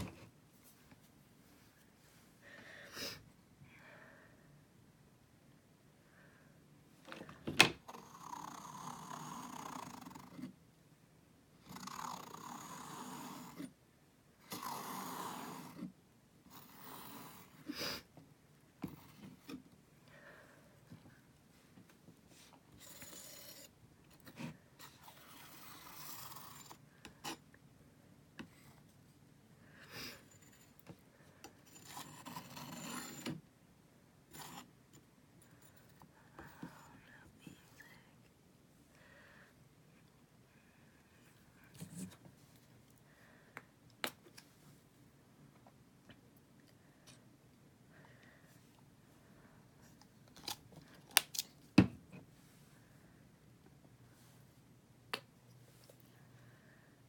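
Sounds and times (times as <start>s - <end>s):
palette knife scraping canvas: 14.5s - 15.9s, 16.5s - 17.6s, 22.8s - 27.4s, 31.7s - 33.3s.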